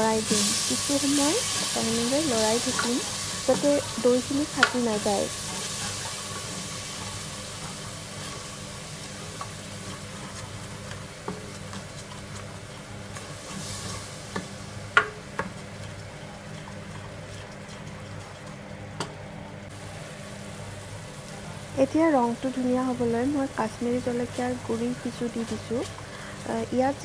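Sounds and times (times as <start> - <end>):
low steady sizzle: 0.0 - 27.0.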